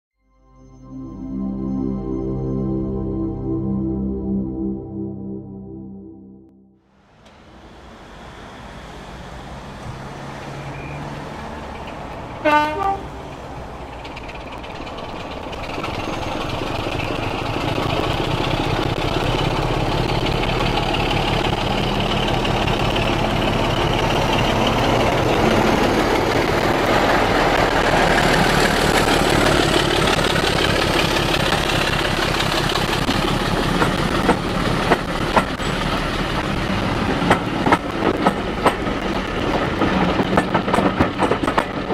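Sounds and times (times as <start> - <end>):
train engine and wheels rumbling: 6.9 - 41.9
train horn blast: 12.4 - 13.2
wheel clicks over rail joints: 28.3 - 41.9.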